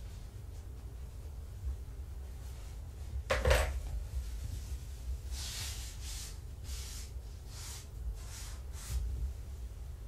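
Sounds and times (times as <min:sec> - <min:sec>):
scratchy brushing strokes: 0:03.9 - 0:10.0.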